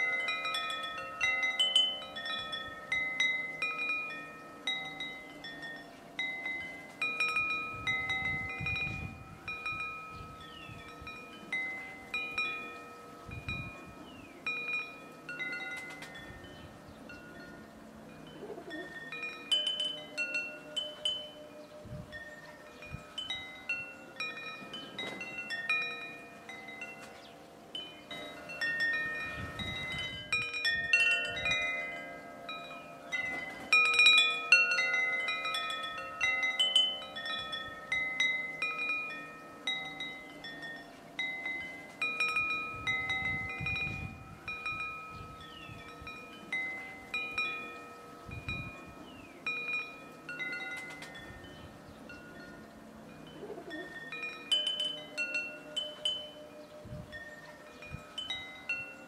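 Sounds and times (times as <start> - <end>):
wind chimes ringing: 0.0 - 59.0.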